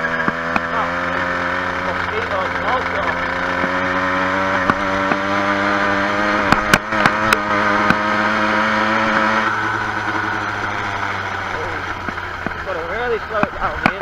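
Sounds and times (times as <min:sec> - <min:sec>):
motorised bicycle engine running: 0:00.0 - 0:14.0
sharp clicks or knocks: 0:00.2 - 0:00.7, 0:04.6 - 0:05.3, 0:06.4 - 0:08.1.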